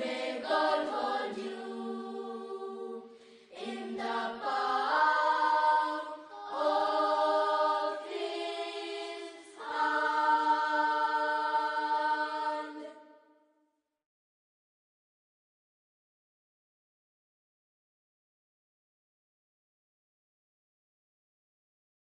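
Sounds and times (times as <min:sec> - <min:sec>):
wordless choir singing sustained chords: 0:00.0 - 0:13.2.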